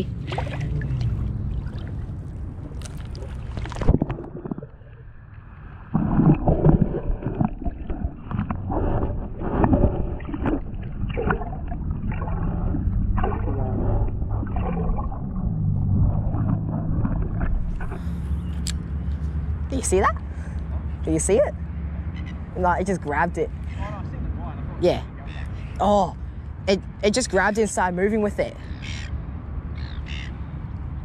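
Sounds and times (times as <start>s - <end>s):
underwater thumps and gurgles: 0.0s - 18.2s
water splashing: 0.0s - 18.7s.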